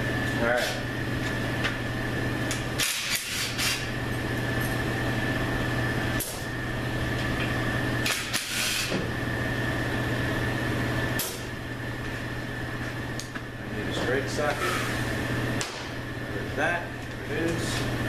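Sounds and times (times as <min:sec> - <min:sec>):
steady mechanical hum: 0:00.0 - 0:18.0
power ratchet bursts: 0:02.8 - 0:03.8.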